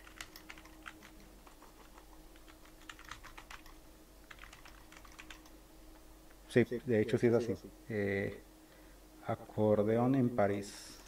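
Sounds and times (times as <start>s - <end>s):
typing on a keyboard: 0.0s - 5.5s
low electrical hum: 0.0s - 11.0s.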